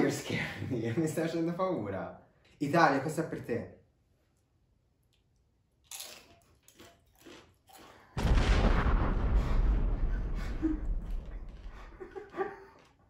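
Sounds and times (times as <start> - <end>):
tortilla chip crunching: 5.1 - 8.2
loud explosion boom: 8.2 - 12.2.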